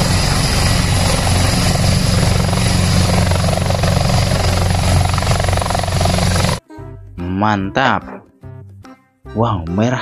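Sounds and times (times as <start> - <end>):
helicopter rotor chopping: 0.0 - 6.6
turbine rush: 0.0 - 6.6.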